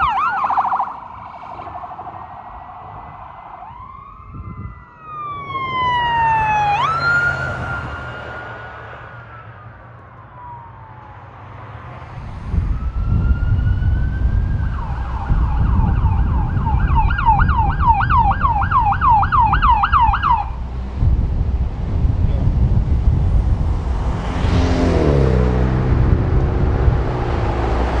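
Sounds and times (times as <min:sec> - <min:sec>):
electronic siren wailing and yelping: 0:00.0 - 0:01.0, 0:03.4 - 0:08.6, 0:12.8 - 0:20.6
low rumble: 0:20.5 - 0:28.0.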